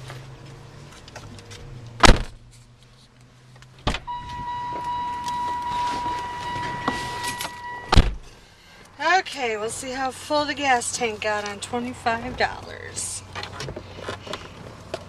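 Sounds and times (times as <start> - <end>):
car door slamming: 2.0 - 2.4, 3.8 - 8.3
steady high tone: 4.1 - 8.1.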